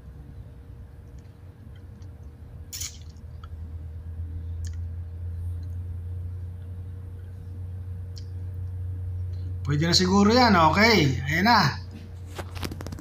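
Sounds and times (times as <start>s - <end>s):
low room hum: 0.0s - 13.0s
sharp click: 2.7s - 3.2s
short crackle: 12.3s - 13.0s.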